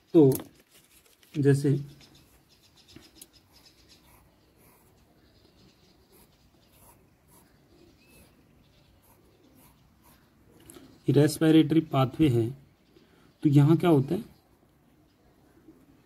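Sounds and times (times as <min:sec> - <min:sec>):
pencil scratching on paper: 0:02.7 - 0:05.1, 0:06.0 - 0:08.4, 0:09.0 - 0:10.3.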